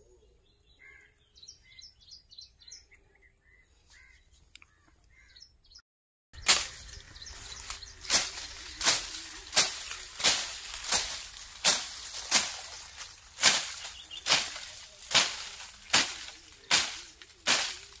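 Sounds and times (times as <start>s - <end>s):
blade chopping weeds: 6.4s - 18.0s.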